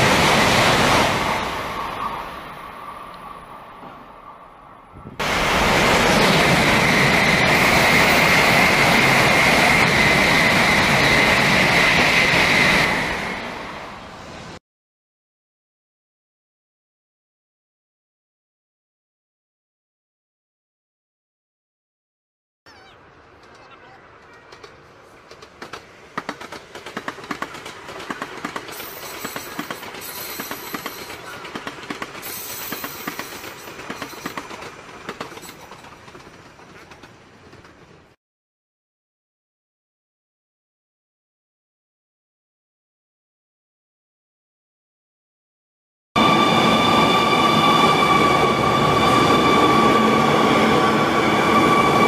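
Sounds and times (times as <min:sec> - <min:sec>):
high-speed train rushing past: 0:00.0 - 0:14.6, 0:23.0 - 0:38.2, 0:46.2 - 0:52.0
train wheels clicking on rails: 0:23.3 - 0:38.2.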